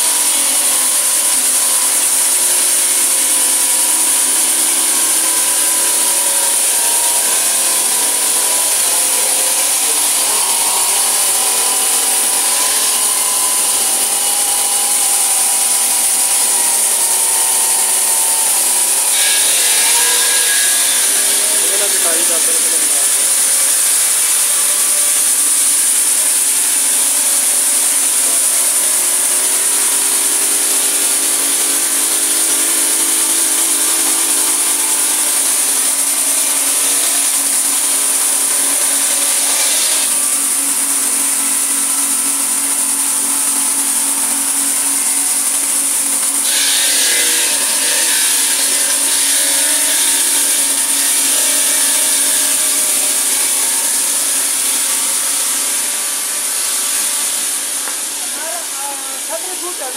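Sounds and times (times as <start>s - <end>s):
polishing machine grinding marble: 0.0s - 59.9s.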